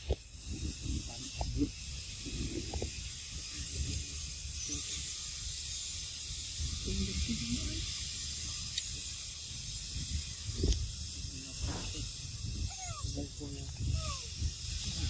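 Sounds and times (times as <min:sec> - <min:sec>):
wind rumble on microphone: 0:00.0 - 0:04.8, 0:06.2 - 0:15.0.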